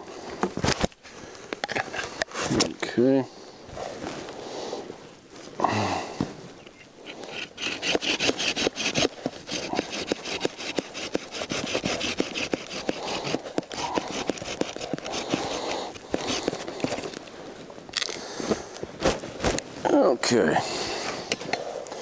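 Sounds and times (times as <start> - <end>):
hand saw cutting branch: 7.0 - 17.1.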